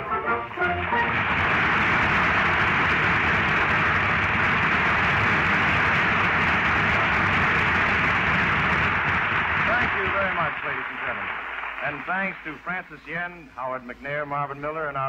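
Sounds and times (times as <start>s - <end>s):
studio audience applauding: 0.0s - 13.4s.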